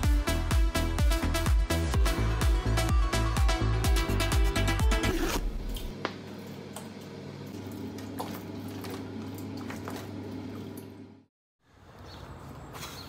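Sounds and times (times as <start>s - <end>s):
electronic dance music: 0.0s - 5.4s.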